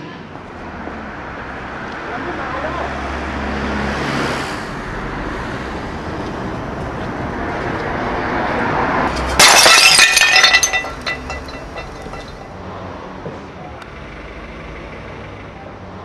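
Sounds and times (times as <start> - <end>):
street traffic noise: 0.0 - 16.0
flowerpot smashing on pavement: 9.1 - 12.5
shards clattering: 9.1 - 12.5.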